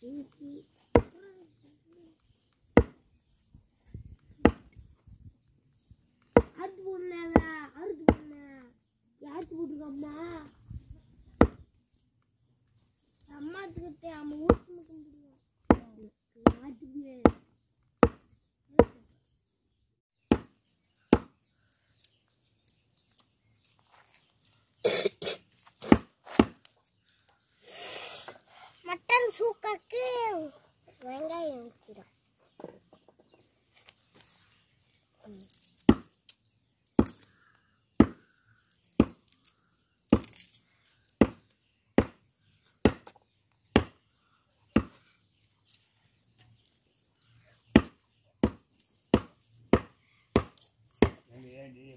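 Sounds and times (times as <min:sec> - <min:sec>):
cleaver chopping on wooden block: 0:17.2 - 0:19.0, 0:20.3 - 0:21.4, 0:35.9 - 0:36.1, 0:37.0 - 0:37.2, 0:38.0 - 0:38.2, 0:41.2 - 0:41.4, 0:42.0 - 0:42.2, 0:42.8 - 0:43.1, 0:47.7 - 0:51.3.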